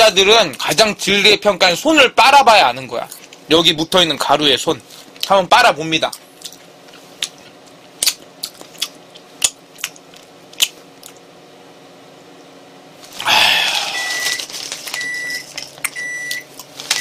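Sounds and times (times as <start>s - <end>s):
snack bag rustling: 13.0s - 17.0s
microwave oven beeps: 13.8s - 17.0s.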